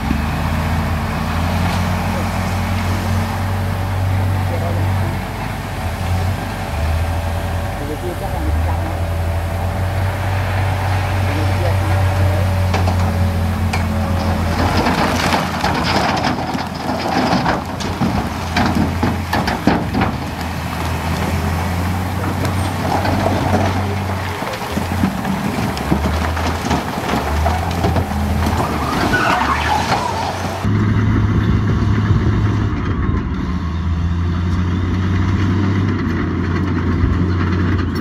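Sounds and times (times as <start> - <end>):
bulldozer diesel engine running: 0.0 - 38.0
stones clattering: 12.8 - 30.4.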